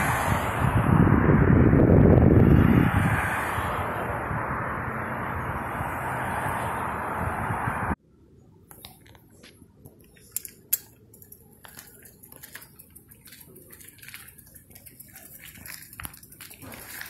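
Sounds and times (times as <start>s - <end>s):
footsteps on gritty asphalt: 9.0s - 17.0s.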